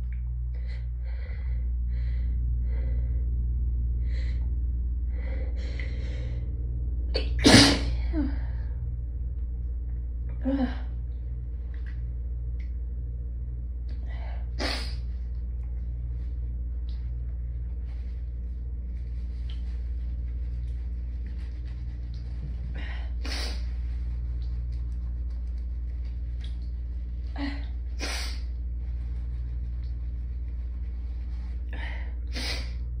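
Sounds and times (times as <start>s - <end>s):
steady low hum: 0.0s - 33.0s
person sneezing: 7.2s - 8.0s
person sniffing through nose: 28.0s - 28.5s, 32.3s - 32.8s.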